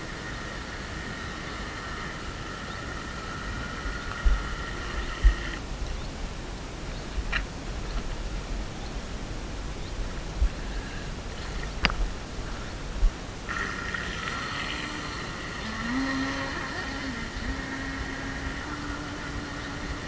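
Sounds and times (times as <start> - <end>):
high-pitched speedboat motor whine: 0.0 - 5.7, 12.5 - 20.0
low rumble: 1.2 - 20.0.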